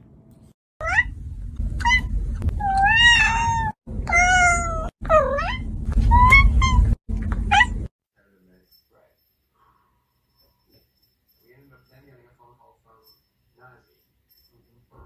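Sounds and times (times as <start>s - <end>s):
cat meowing loudly: 1.8s - 7.7s.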